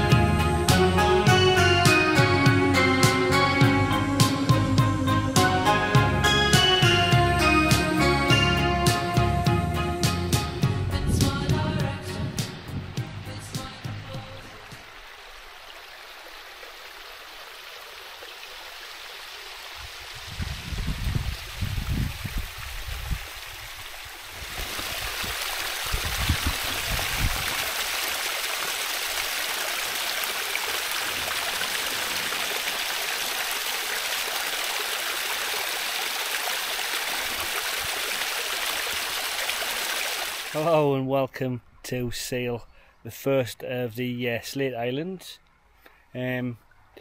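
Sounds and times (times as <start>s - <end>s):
low rumbles: 9.4s - 14.8s
stream rushing over stones: 13.4s - 40.7s.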